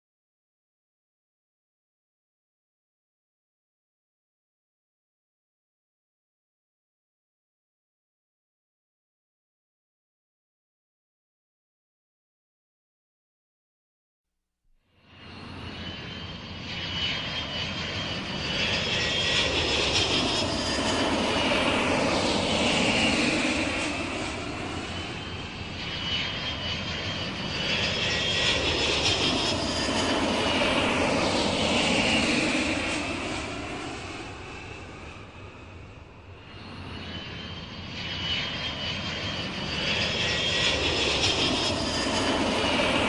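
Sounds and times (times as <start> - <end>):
airplane engines whining: 15.0 - 43.0.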